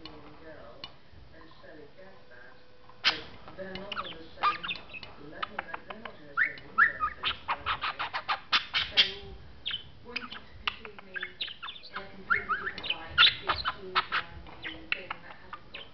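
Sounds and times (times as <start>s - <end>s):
budgerigar chattering: 3.0s - 15.9s.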